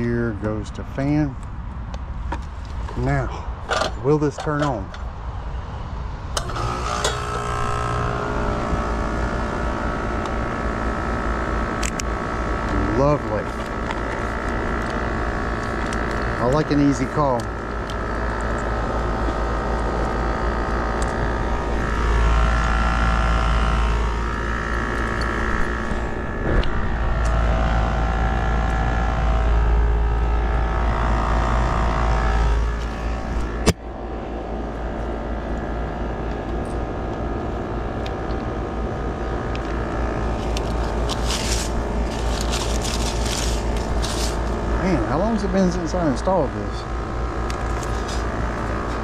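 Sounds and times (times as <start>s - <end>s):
air conditioner humming: 0.0s - 49.0s
handling noise: 39.6s - 44.8s, 47.0s - 49.0s.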